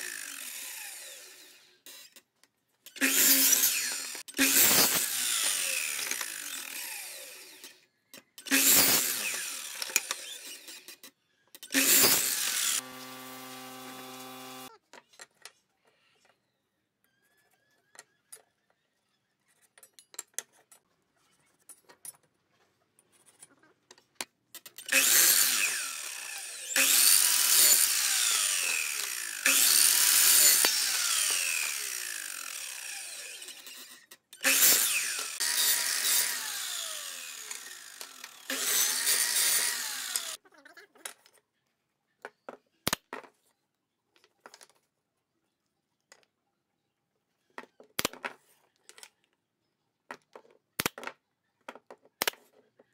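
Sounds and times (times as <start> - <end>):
miter saw cutting wood: 0.0 - 2.0, 3.0 - 7.8, 8.5 - 10.9, 11.7 - 14.7, 24.9 - 40.4.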